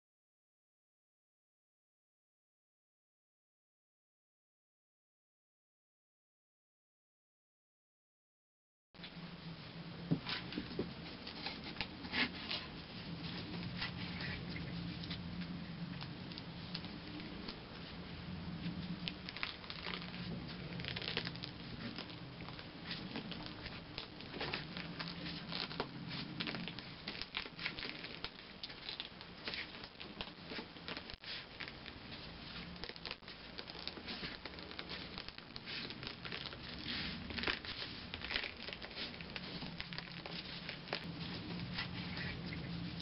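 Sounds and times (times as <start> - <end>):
paper rustling and crinkling: 18.6 - 43.0.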